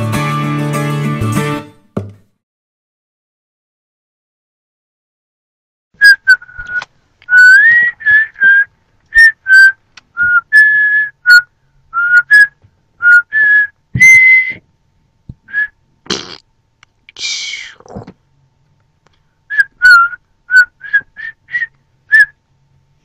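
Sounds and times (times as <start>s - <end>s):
person whistling a tune: 6.0s - 14.6s, 15.5s - 15.7s, 19.5s - 22.4s.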